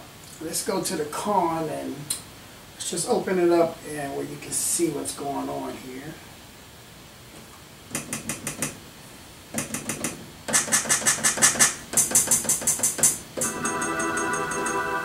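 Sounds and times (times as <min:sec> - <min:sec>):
fast repeated electronic notes: 0:13.4 - 0:15.0
sustained keyboard chord: 0:13.4 - 0:15.0.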